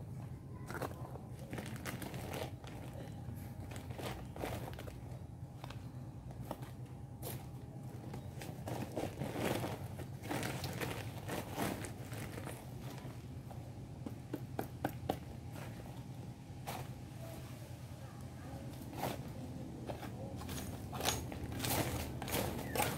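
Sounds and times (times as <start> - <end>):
steady low hum: 0.0 - 22.9
plastic sack crinkling: 0.7 - 5.2, 8.5 - 13.2.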